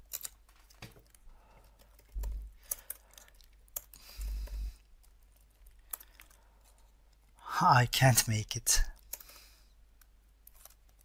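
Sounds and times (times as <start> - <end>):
computer keyboard clicks: 1.8 - 4.6, 5.6 - 6.4.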